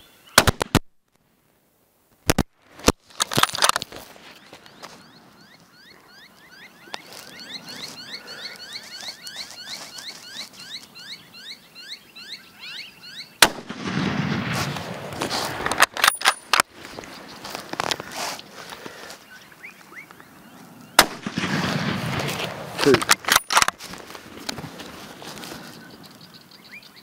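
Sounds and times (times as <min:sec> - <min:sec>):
birds chirping: 0:00.0 - 0:00.4, 0:04.0 - 0:13.5, 0:14.1 - 0:27.0
rifle shot with echo: 0:00.4 - 0:00.8, 0:13.4 - 0:16.6, 0:21.0 - 0:23.7
sharp clicks: 0:22.8 - 0:23.8.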